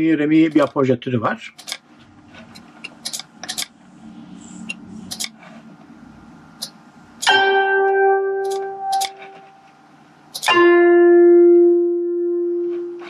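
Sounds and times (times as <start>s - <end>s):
mouse and keyboard clicks: 3.0s - 3.7s, 8.4s - 9.2s
single ringing note: 7.2s - 9.6s.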